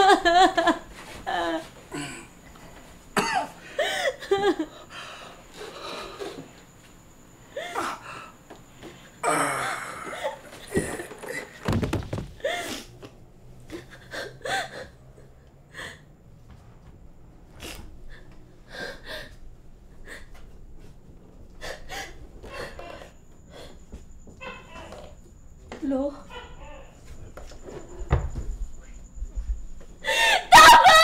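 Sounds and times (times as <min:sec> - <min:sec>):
dull thump: 0:11.6 - 0:12.5.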